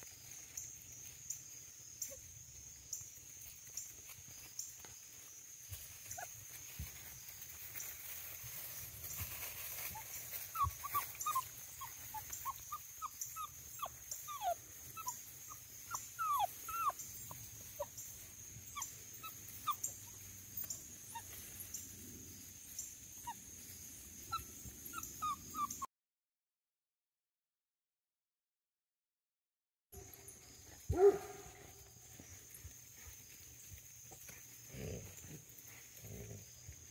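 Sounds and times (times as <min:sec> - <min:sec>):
puppy whimpering: 0:10.5 - 0:17.9, 0:18.7 - 0:21.3, 0:24.3 - 0:25.9.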